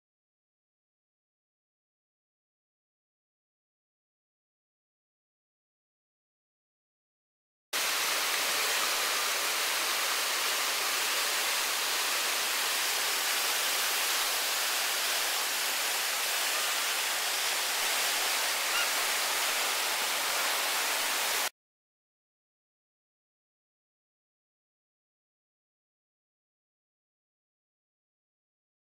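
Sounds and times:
whitewater rushing: 7.8s - 21.5s.

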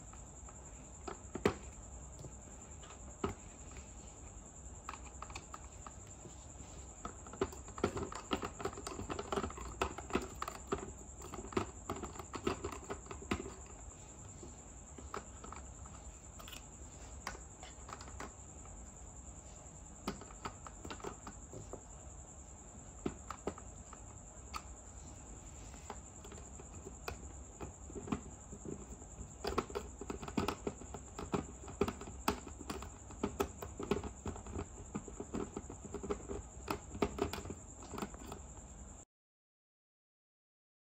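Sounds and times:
plastic toys clicking and tapping: 0.0s - 4.0s, 4.8s - 18.8s, 20.0s - 21.8s, 22.8s - 24.9s, 25.6s - 38.6s.

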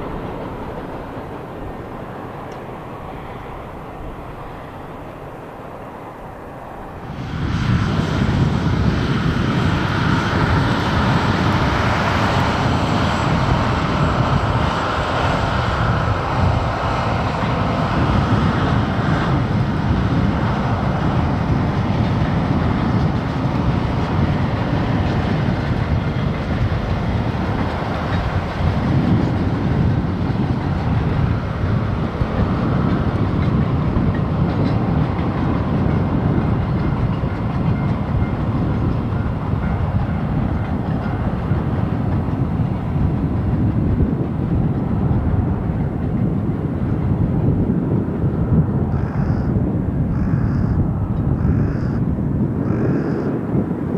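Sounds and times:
freight train rumbling past: 0.0s - 53.9s
wheels clattering over rail joints: 21.4s - 47.6s.

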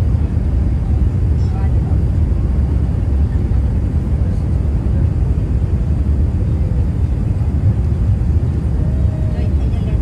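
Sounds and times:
airliner cabin engine rumble: 0.0s - 10.0s.

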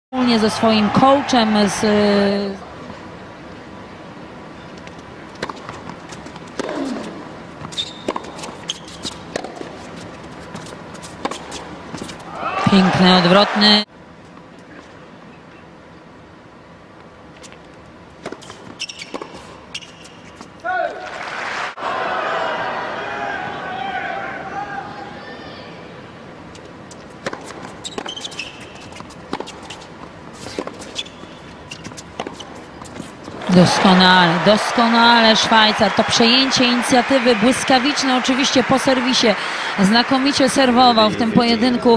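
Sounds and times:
tennis ball bouncing: 4.8s - 13.4s, 18.2s - 20.5s, 26.6s - 39.1s
racket hitting tennis ball: 5.3s - 13.0s, 26.9s - 34.0s
sneaker squeak: 7.6s - 12.3s, 18.3s - 20.6s, 26.6s - 33.2s.

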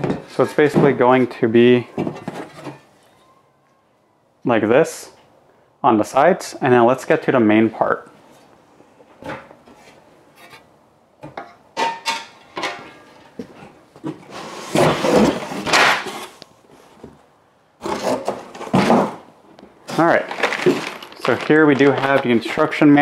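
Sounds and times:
cardboard scraping against box: 14.2s - 16.4s, 17.8s - 19.2s.

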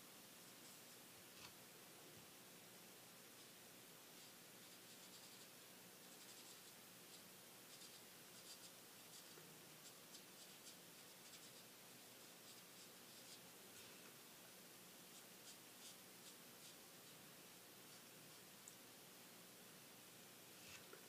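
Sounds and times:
marker nib scratching on card: 4.2s - 13.4s, 15.1s - 17.2s.

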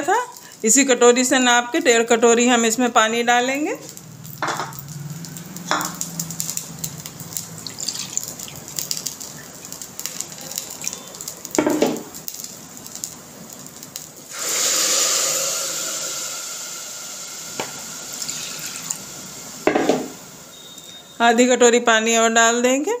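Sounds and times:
faint crackling from hot cooker: 0.0s - 23.0s
water pouring into cooker: 3.9s - 12.2s, 12.9s - 20.6s.

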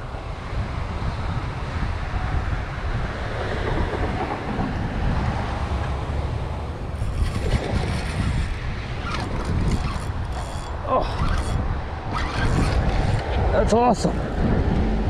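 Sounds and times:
wind buffeting microphone: 0.0s - 15.0s
fine clicking: 7.0s - 13.4s.

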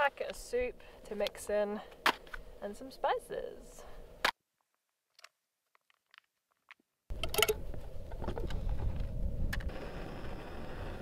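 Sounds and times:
wind rumble on microphone: 7.1s - 11.0s.

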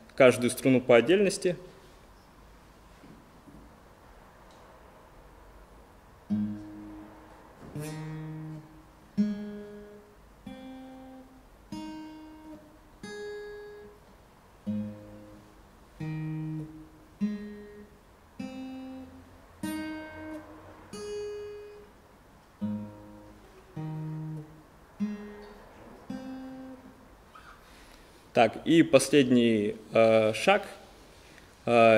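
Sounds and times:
acoustic guitar plucking: 6.2s - 27.8s.

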